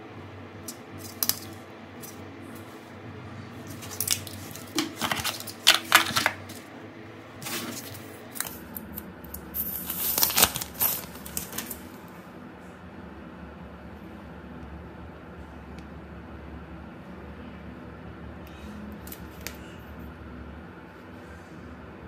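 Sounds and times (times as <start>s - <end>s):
hands handling phone packaging: 0.7s - 2.2s, 3.6s - 6.7s, 7.4s - 12.0s.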